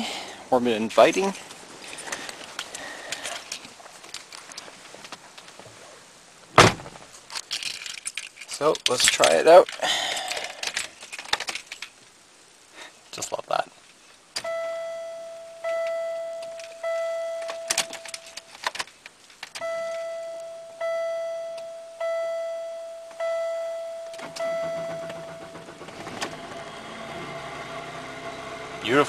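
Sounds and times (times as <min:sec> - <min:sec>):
dashboard warning chime: 0:14.4 - 0:18.5, 0:19.6 - 0:26.0
car engine starting and running: 0:19.6 - 0:29.0.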